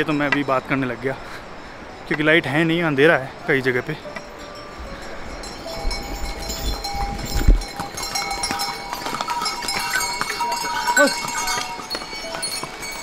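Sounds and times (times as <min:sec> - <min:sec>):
harness bells jingling: 0:00.0 - 0:13.0
voices of people: 0:10.2 - 0:11.7.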